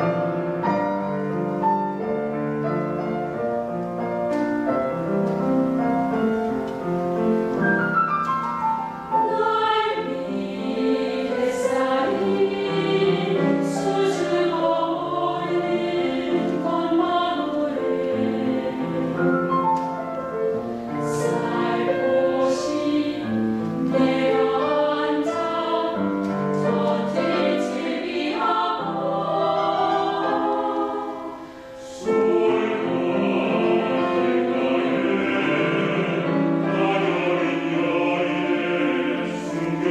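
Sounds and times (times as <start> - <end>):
mixed choir singing: 9.0 - 39.9.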